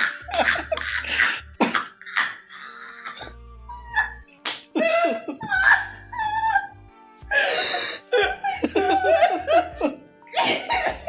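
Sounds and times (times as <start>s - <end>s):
people laughing: 0.0s - 3.3s, 4.8s - 6.5s, 7.3s - 11.0s
quiet background music: 0.0s - 11.0s.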